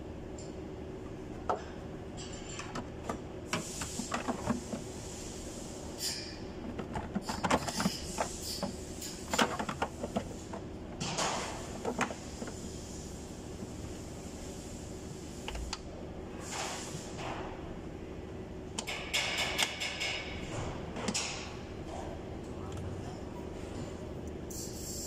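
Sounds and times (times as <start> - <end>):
steady low hum: 0.0 - 18.9
hands handling plastic parts: 6.6 - 12.6.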